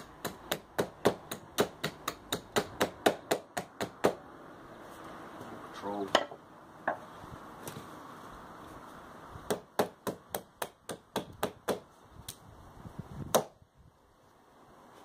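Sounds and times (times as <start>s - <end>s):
knife chopping into wood: 0.0s - 4.2s.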